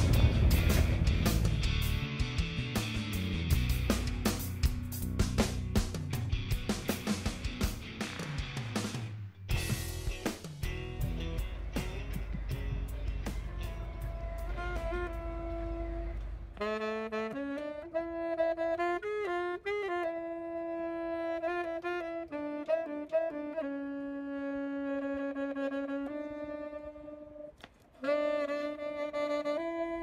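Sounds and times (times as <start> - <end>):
solo saxophone melody: 11.0 - 30.0.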